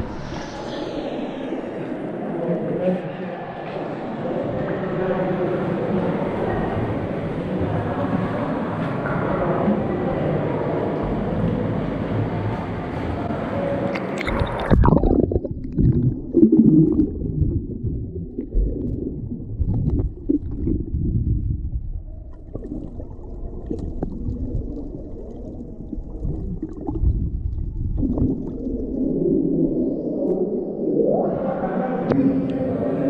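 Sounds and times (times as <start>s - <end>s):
underwater water gurgle: 13.9s - 33.0s.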